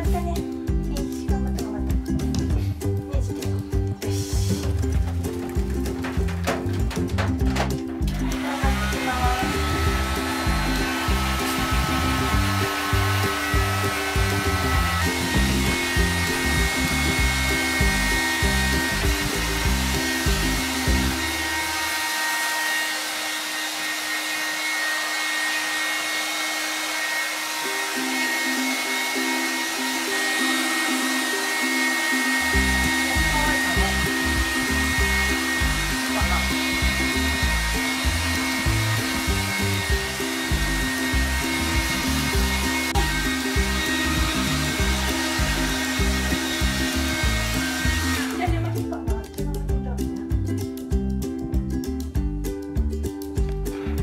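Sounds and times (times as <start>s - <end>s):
background music: 0.0s - 23.6s, 27.0s - 54.0s
hair dryer blowing: 7.5s - 48.8s.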